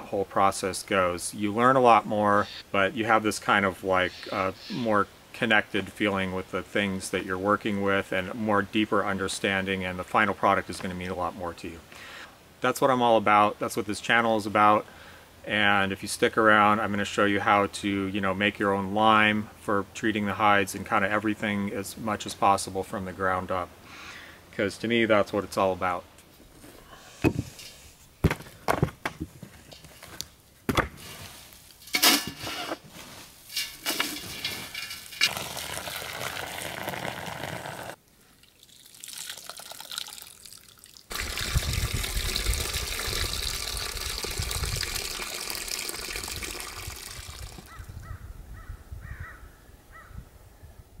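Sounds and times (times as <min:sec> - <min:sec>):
liquid pouring into steel pot: 0:35.1 - 0:47.7.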